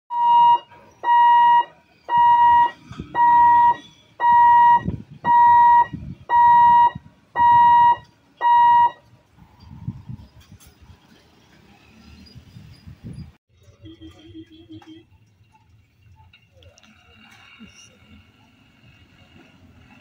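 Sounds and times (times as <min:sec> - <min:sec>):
level crossing warning beeps: 0:00.1 - 0:09.0
low rumble of waiting vehicles: 0:00.1 - 0:20.0.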